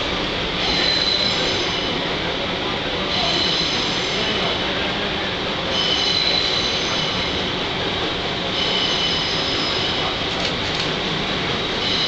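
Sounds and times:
train rumble: 0.0 - 12.0
train wheels squealing: 0.6 - 2.0, 3.1 - 4.5, 5.7 - 7.5, 8.5 - 10.1, 11.8 - 12.0.

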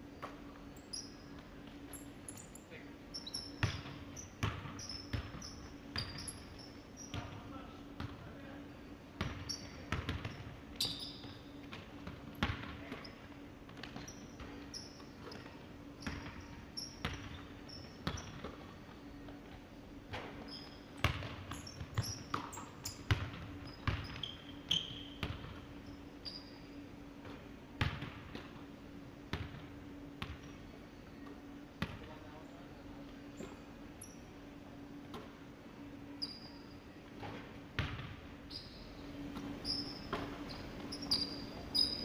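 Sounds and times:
sneaker squeaks: 0.2 - 8.1, 9.2 - 19.4, 20.1 - 26.8, 33.3 - 34.4, 36.1 - 42.0
basketball bouncing on wooden floor: 3.6 - 5.4, 9.2 - 10.5, 21.0 - 22.5, 23.1 - 24.2.

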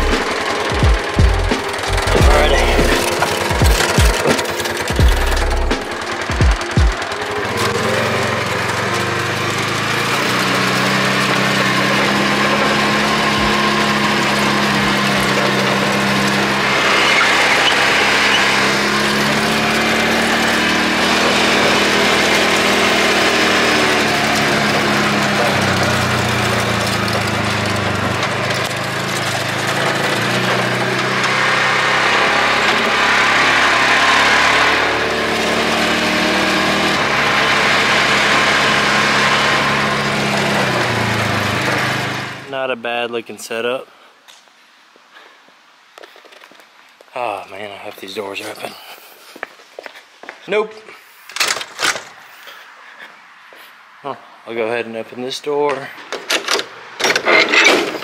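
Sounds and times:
vehicle engine revving while driving: 0.0 - 42.5.

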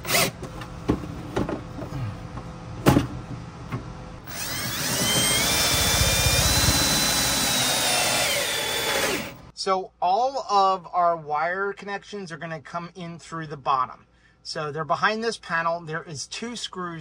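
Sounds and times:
power drill driving screw: 0.0 - 0.4, 4.2 - 9.5.

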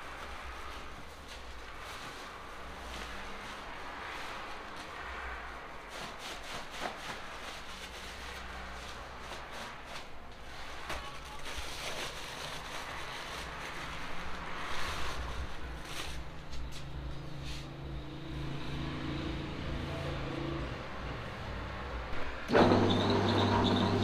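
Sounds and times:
plastic sack crinkling: 0.0 - 16.9.

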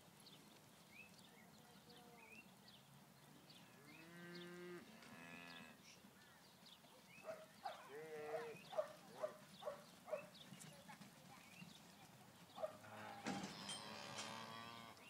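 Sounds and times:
cattle mooing faintly: 7.8 - 8.6, 12.6 - 15.0.

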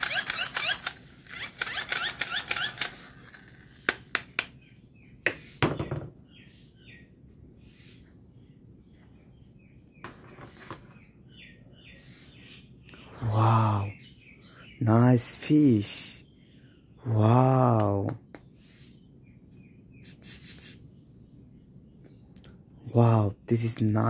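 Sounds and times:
toy rattling chirps: 0.0 - 4.1.

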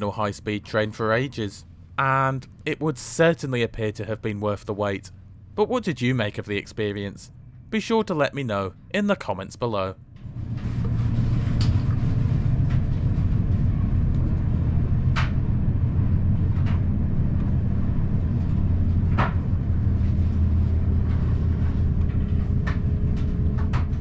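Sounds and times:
faint steady whine: 0.0 - 24.0
train wheels rumbling on rails: 10.2 - 24.0.

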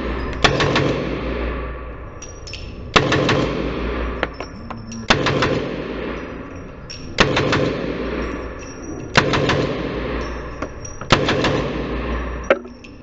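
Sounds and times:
submachine gun bursts echoing: 0.0 - 1.7, 2.9 - 4.3, 5.1 - 6.6, 7.2 - 12.5.

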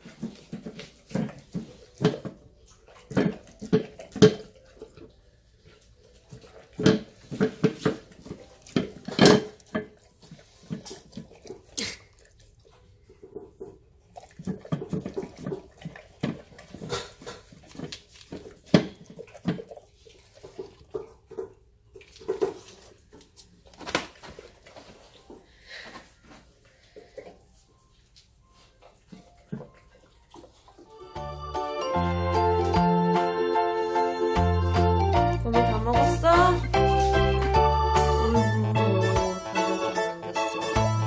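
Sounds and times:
dog chomping and licking: 0.0 - 25.4, 28.7 - 31.0.

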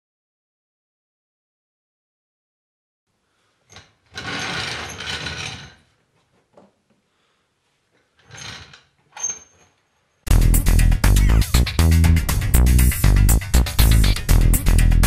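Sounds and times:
trolley jack metal clattering: 3.7 - 5.8.

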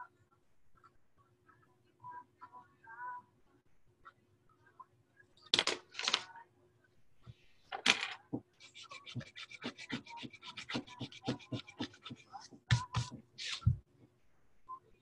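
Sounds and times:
scratching: 7.9 - 13.8.

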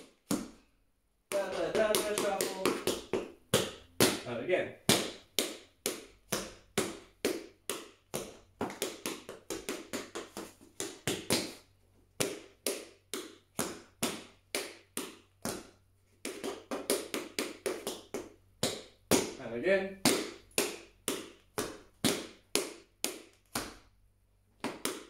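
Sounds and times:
tap shoes striking floor: 1.3 - 4.3.

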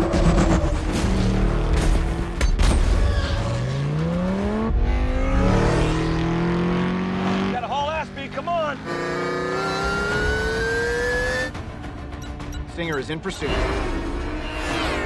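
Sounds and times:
car engines revving past: 3.4 - 7.7.

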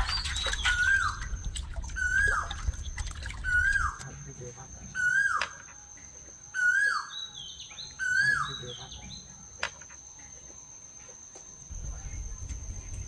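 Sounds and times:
bird calling: 0.0 - 4.1, 4.9 - 5.8, 6.5 - 9.2
insect drone: 0.0 - 13.0.

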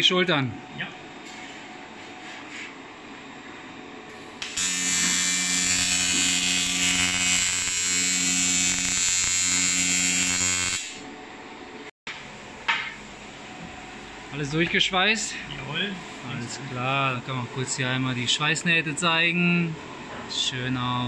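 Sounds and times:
low background hum: 0.0 - 4.7, 10.9 - 21.0
welding arc buzzing: 4.4 - 11.1.

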